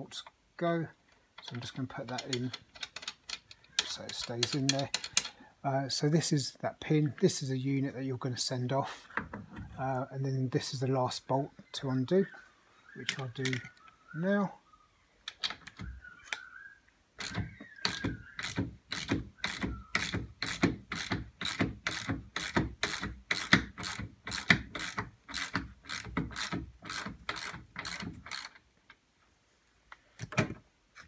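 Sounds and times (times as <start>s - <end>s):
ratchet spanner clicking: 17.2s - 28.6s.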